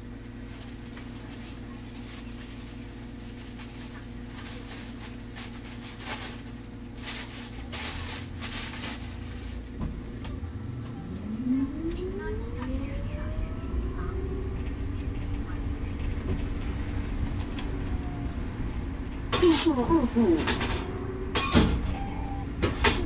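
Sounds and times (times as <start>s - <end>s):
bus electrical hum: 0.0s - 23.0s
road rumble: 0.0s - 23.0s
electric motor whine rising: 10.2s - 15.0s.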